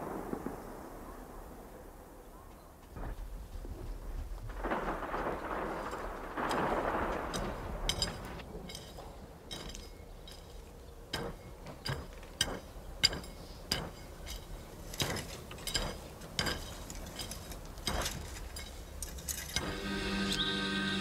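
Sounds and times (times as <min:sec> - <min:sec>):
sharp knocks with metallic ring: 0:07.4 - 0:18.8.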